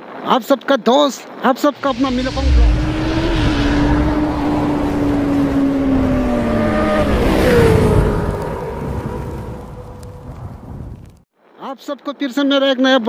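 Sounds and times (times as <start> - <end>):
motorcycle engine at high revs: 1.9 - 9.2.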